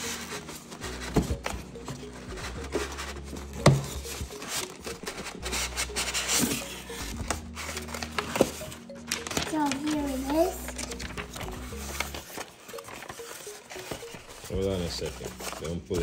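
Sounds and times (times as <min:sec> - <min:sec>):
cardboard and paper rustling: 0:00.0 - 0:16.0.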